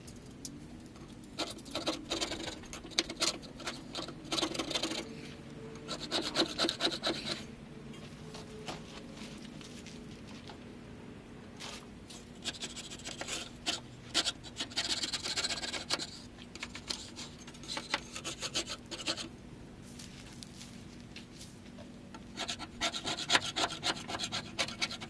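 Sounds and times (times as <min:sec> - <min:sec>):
hand scraping metal surface: 0:05.9 - 0:07.5, 0:12.4 - 0:19.3.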